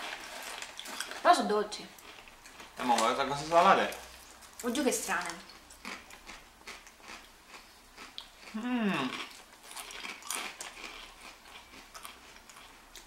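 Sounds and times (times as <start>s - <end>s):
chips being chewed: 0.0s - 1.3s, 2.0s - 3.2s, 3.8s - 13.0s
short moan: 8.6s - 9.1s.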